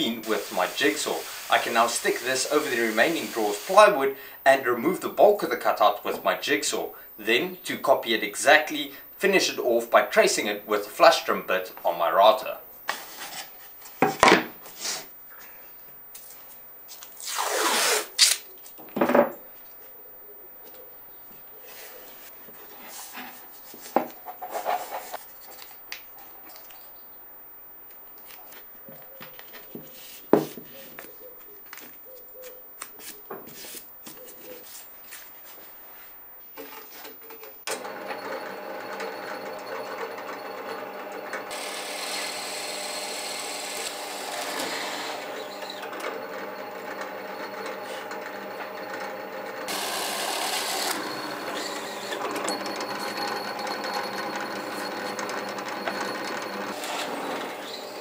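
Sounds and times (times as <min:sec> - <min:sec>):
drill bit boring into plywood: 0:00.4 - 0:03.8, 0:37.7 - 0:58.0
drill press motor hum: 0:37.7 - 0:58.0.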